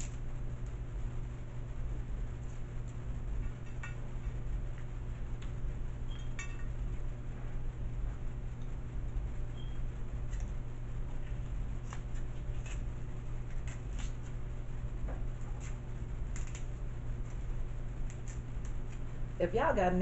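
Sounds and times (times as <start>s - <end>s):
steady low hum: 0.0s - 20.0s
shears snipping crab shell: 11.8s - 14.4s, 15.3s - 19.1s.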